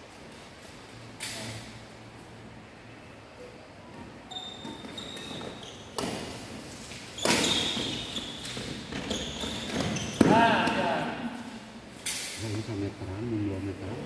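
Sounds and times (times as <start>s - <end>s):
shoes squeaking on court: 3.8s - 10.7s.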